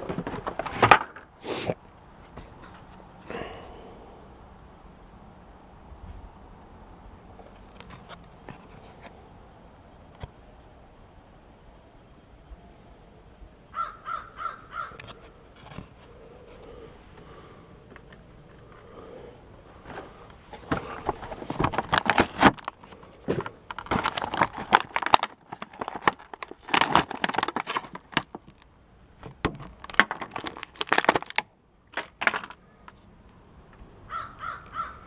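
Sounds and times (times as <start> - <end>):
plastic blister crinkling: 19.8 - 32.6.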